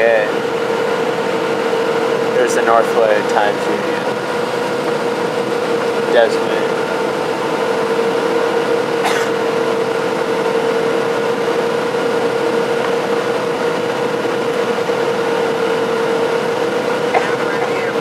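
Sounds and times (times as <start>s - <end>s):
aircraft cabin air and engine noise: 0.0s - 18.0s
droning hum: 0.0s - 18.0s.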